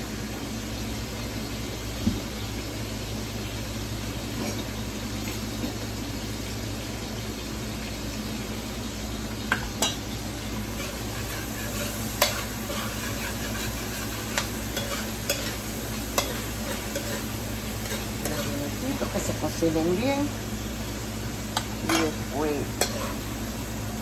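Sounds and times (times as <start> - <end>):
vegetables sizzling in frying pan: 0.0 - 24.0
utensil scraping and clicking on pan: 10.8 - 18.7, 22.8 - 23.2.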